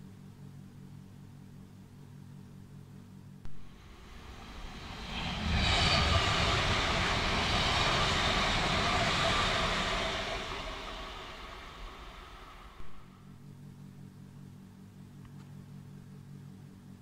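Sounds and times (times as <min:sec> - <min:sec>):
electric train passing: 0:03.6 - 0:13.2.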